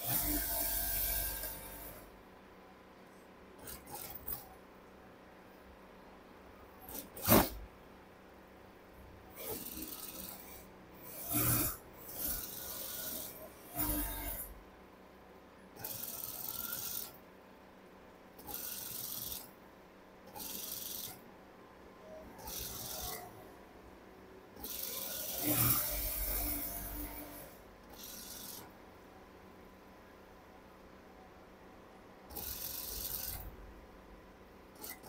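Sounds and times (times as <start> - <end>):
sewing machine whirring: 0.0 - 2.1, 3.6 - 4.6, 6.8 - 7.6, 9.3 - 14.6, 15.8 - 17.2, 18.4 - 19.6, 20.2 - 21.2, 22.0 - 23.4, 24.6 - 28.8, 32.2 - 33.6, 34.7 - 35.0.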